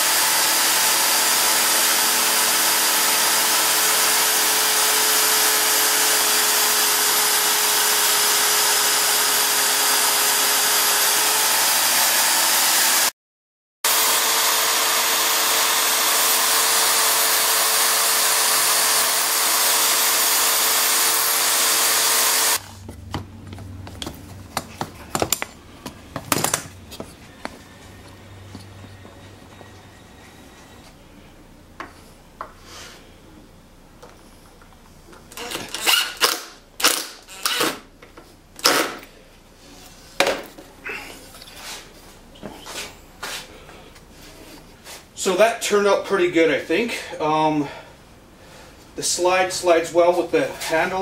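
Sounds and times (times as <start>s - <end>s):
electric drill boring into wood: 0.0s - 13.1s, 13.9s - 22.7s, 35.3s - 37.8s.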